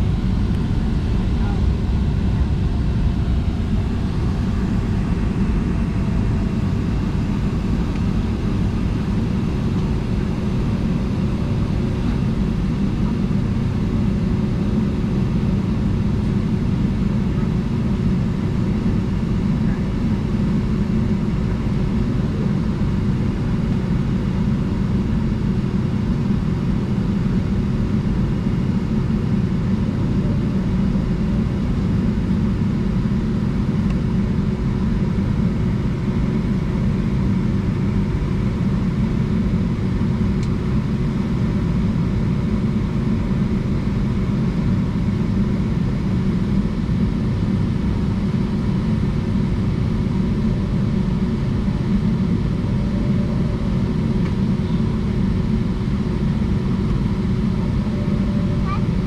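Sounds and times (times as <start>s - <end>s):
faint steady hum: 0.0s - 16.6s
jet engines low rumble: 0.0s - 59.0s.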